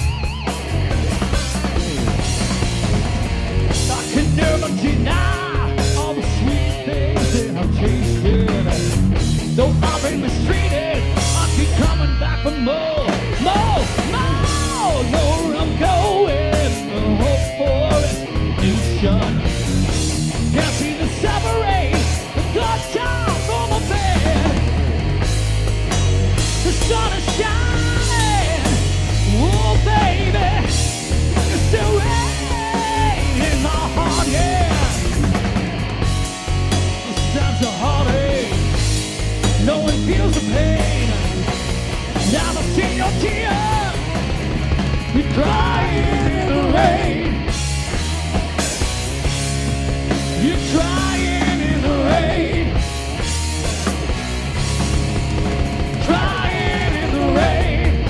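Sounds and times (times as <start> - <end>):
bass guitar: 0.0 - 58.0
drum kit: 0.0 - 58.0
electric guitars: 0.0 - 58.0
man singing: 3.8 - 19.5, 20.4 - 24.7, 26.6 - 35.4, 37.0 - 38.8, 39.4 - 41.5, 42.2 - 44.2, 45.0 - 47.4, 50.3 - 52.8, 56.0 - 58.0.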